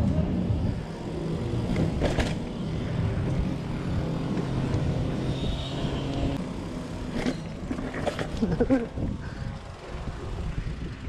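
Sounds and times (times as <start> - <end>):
bike tyres rolling on concrete: 0.0 - 11.0
wind on microphone: 8.6 - 11.0.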